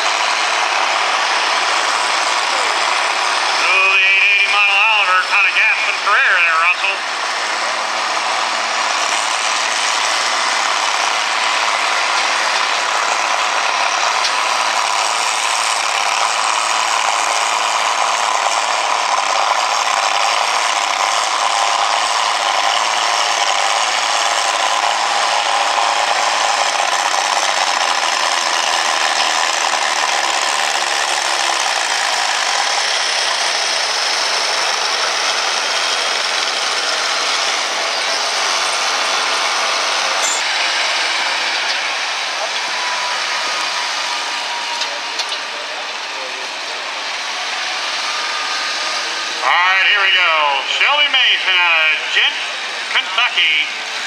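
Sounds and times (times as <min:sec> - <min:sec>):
tractor engine under heavy load: 0:00.0 - 0:54.0.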